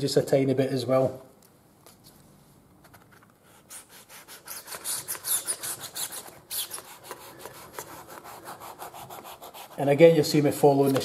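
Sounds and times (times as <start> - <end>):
knife scraping strokes: 3.7 - 10.0.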